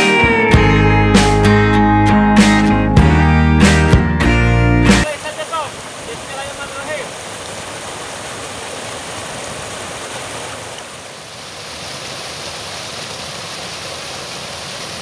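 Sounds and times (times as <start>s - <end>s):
stream rushing over stones: 5.0s - 15.0s.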